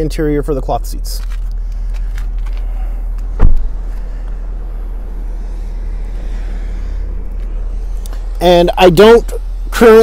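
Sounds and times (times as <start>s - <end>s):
low rumble: 1.2s - 10.0s
car door shutting: 2.0s - 4.5s.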